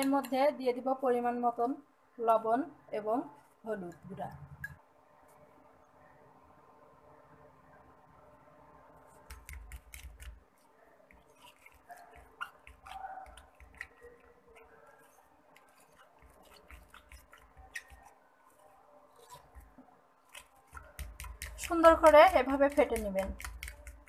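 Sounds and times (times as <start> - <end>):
spoon stirring thick batter: 0.0 - 0.9, 3.0 - 6.1, 8.7 - 24.0
spoon scraping glass bowl: 11.1 - 19.7.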